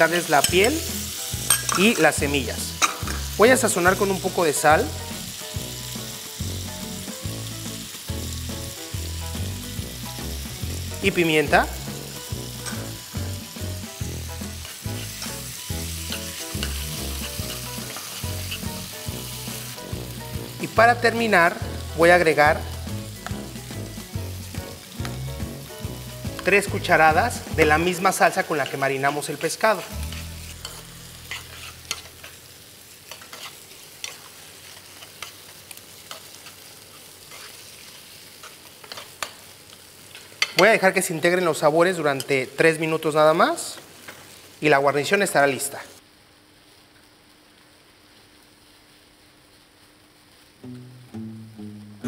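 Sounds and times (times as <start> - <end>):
vegetables sizzling in a frying pan: 0.0 - 52.0
metal spoon scraping a pan: 0.4 - 2.0, 16.0 - 18.8, 28.6 - 32.4, 33.1 - 39.4
utensil stirring and scraping: 29.7 - 32.4, 33.1 - 35.4, 36.1 - 37.7.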